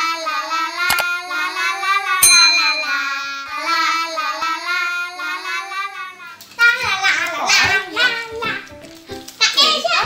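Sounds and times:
child-like voice singing jingle: 0.9 - 5.7
bright bell ding: 2.2 - 3.4.

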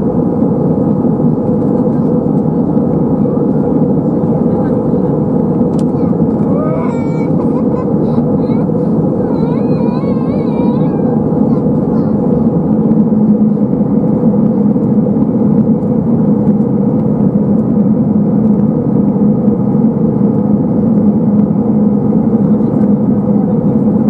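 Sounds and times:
airplane cabin engine and airflow: 0.0 - 24.0
low hum: 0.0 - 24.0.

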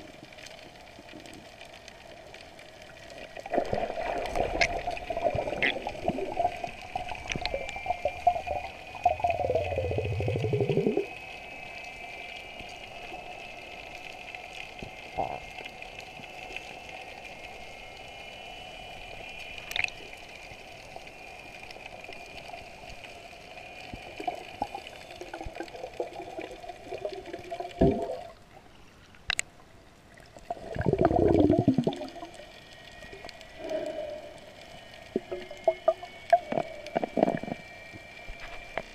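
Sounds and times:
faint hum: 0.0 - 38.9
underwater rushing and bubbling: 0.0 - 38.9.

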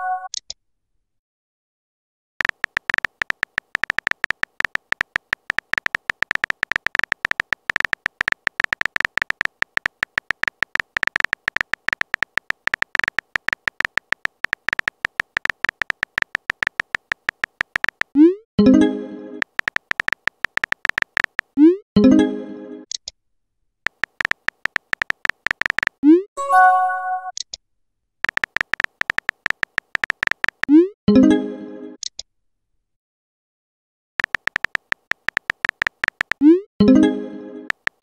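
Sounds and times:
phone keyboard clicks: 2.4 - 18.2, 19.4 - 21.6, 23.9 - 26.0, 28.2 - 30.7, 34.2 - 36.5, 37.7 - 38.0.

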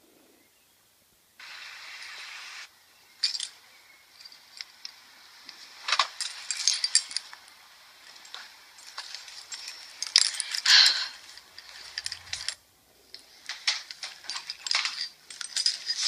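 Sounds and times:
short steady hiss: 1.4 - 2.7
handling knocks and rattles: 3.2 - 16.0
car keys jangling: 5.9 - 12.6, 13.4 - 16.0.

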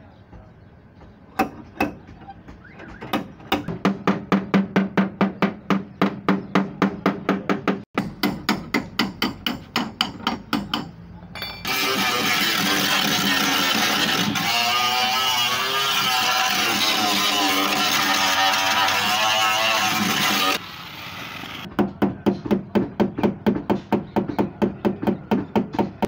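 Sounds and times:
hammer on metal panel: 0.4 - 11.9, 21.7 - 26.0.

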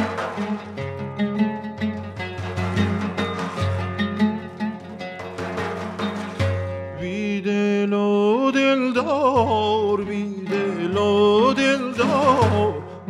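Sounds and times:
oud playing: 0.0 - 7.8, 8.6 - 13.0
man singing wordlessly: 7.0 - 13.0.

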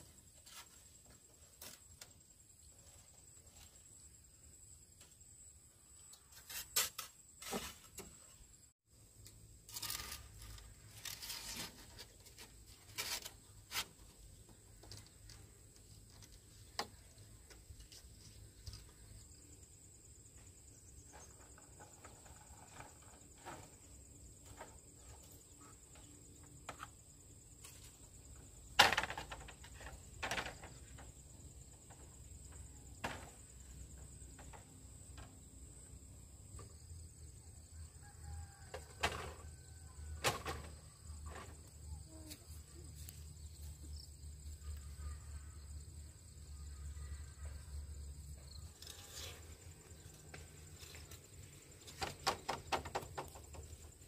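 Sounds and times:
high insect drone: 0.0 - 54.0
bamboo poles knocking and clacking: 27.6 - 31.2, 33.0 - 35.4, 50.0 - 54.0.

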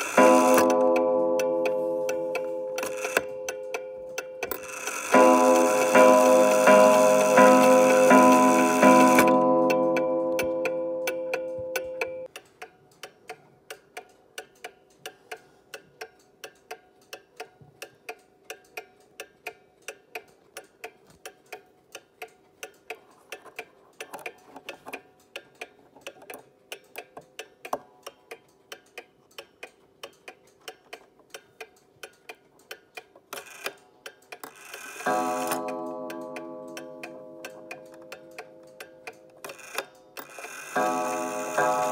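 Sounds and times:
clock gong ringing: 0.0 - 12.3, 35.1 - 39.0, 40.8 - 41.9
clock ticking: 0.0 - 41.9.

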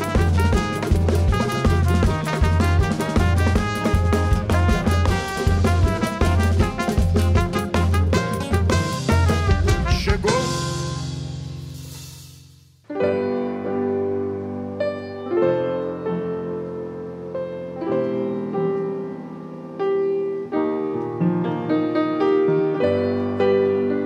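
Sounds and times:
grand piano chords: 12.9 - 24.0.

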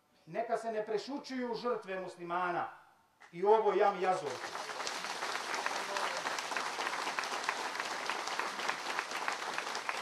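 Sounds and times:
crowd applauding: 4.1 - 10.0.

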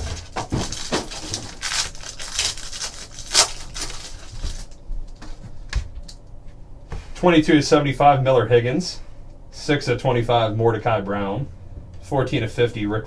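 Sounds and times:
plastic wrapping crinkling and tearing: 0.0 - 5.3.

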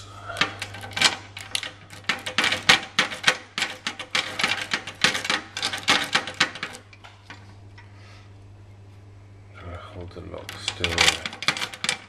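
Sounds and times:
lock pick rattling in lock: 0.4 - 6.9, 10.4 - 12.0.

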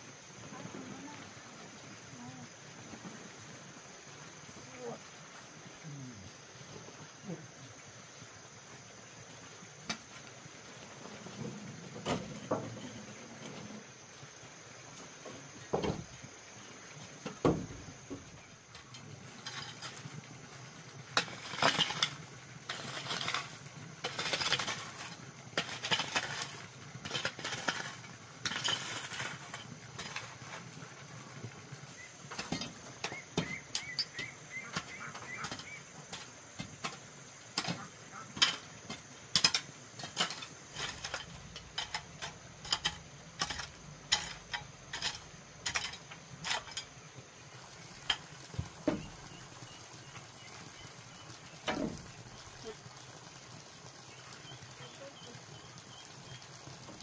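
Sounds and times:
hand tools knocking and scraping: 17.3 - 20.1, 21.2 - 30.6, 32.2 - 47.0.

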